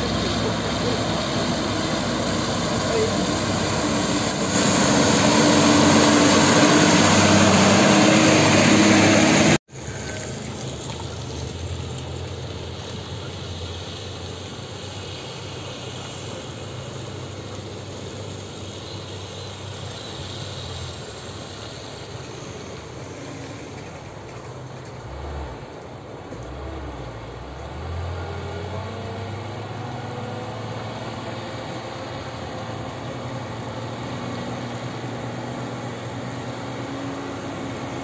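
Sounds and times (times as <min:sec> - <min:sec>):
distant truck engine drone: 0:00.0 - 0:38.0
dump truck engine running: 0:00.0 - 0:38.0.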